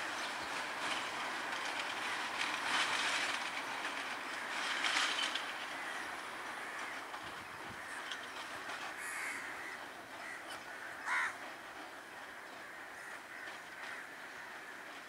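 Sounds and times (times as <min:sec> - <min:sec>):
steady background noise: 0:00.0 - 0:15.0
crows cawing: 0:05.8 - 0:07.2, 0:07.8 - 0:08.3, 0:08.9 - 0:11.4, 0:12.4 - 0:14.8.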